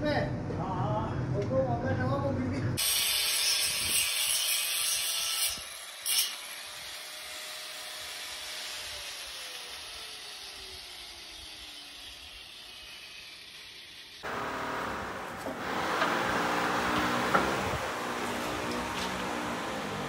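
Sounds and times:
angle grinder grinding steel: 0:02.8 - 0:20.0
grinder whine winding down: 0:08.8 - 0:20.0.

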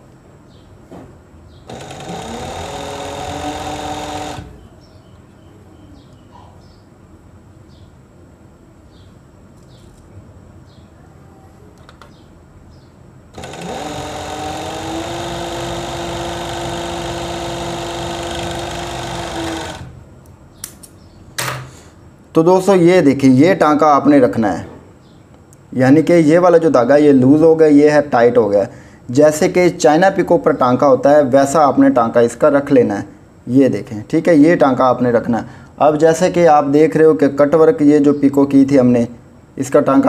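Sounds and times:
overlock sewing machine stitching: 0:01.7 - 0:04.6, 0:13.4 - 0:20.0.

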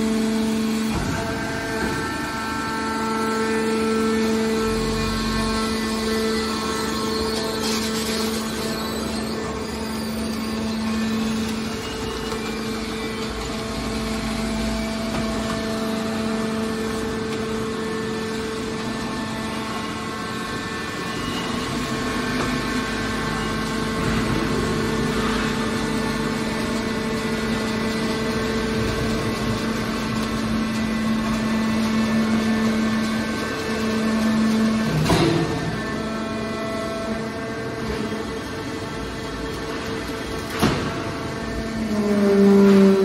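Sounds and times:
machine hum with low tone: 0:00.0 - 0:43.0
mechanical whir: 0:00.0 - 0:43.0.

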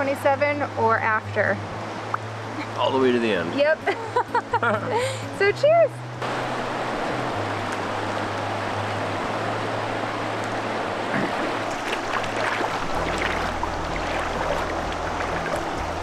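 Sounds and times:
river rushing over rocks: 0:06.0 - 0:16.0
foot splashing in water: 0:10.3 - 0:16.0.

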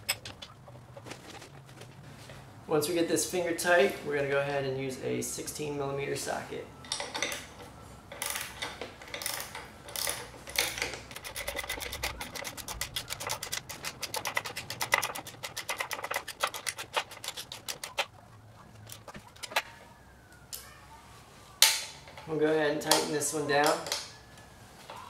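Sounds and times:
ratchet pawl clicking: 0:09.1 - 0:18.1
ratchet scraping: 0:09.1 - 0:18.1.

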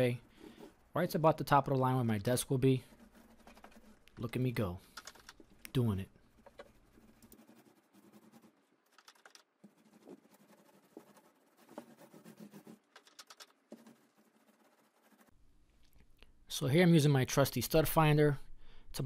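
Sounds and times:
paint roller ticking on wall: 0:06.4 - 0:14.8.

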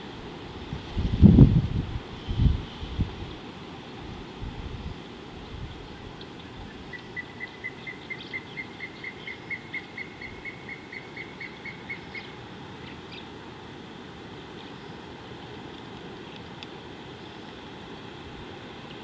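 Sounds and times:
bird calling: 0:06.4 - 0:13.3.

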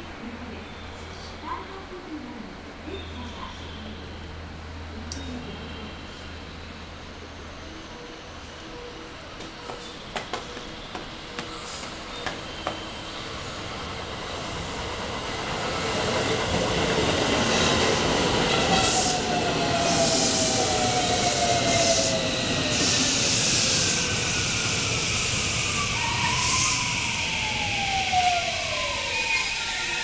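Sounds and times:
train rumble and rail noise: 0:00.0 - 0:30.0
train motor whine: 0:18.2 - 0:30.0.

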